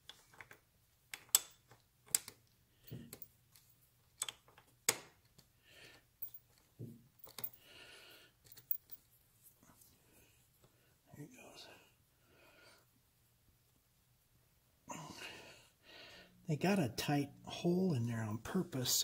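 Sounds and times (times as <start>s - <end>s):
faint steady hum: 5.4s - 19.0s
hand tools clicking and knocking: 7.2s - 7.6s.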